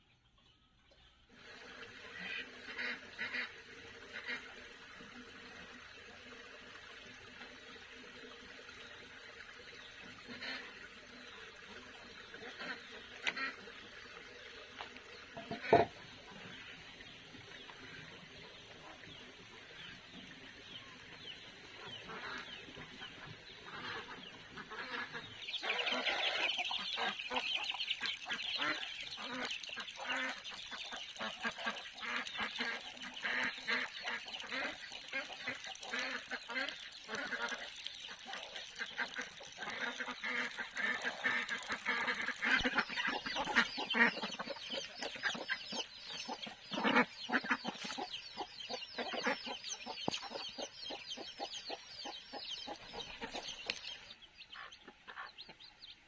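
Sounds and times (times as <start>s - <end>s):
poultry clucking: 15.3s - 16.5s, 20.6s - 55.7s.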